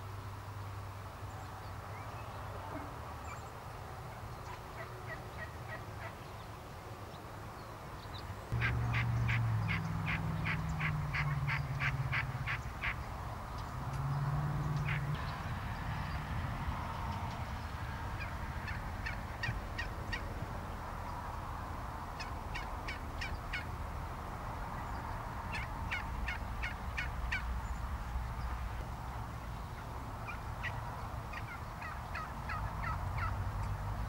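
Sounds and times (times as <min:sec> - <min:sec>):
wild turkeys calling: 0:04.4 - 0:06.2, 0:08.5 - 0:13.7, 0:14.7 - 0:15.5, 0:18.0 - 0:20.3, 0:22.1 - 0:23.8, 0:24.8 - 0:28.5, 0:29.8 - 0:33.7.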